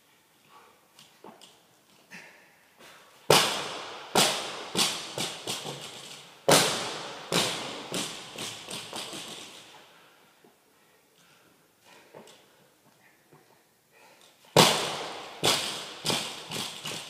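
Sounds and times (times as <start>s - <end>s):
barbell bang and bounces: 3.3s - 9.7s, 14.6s - 17.0s.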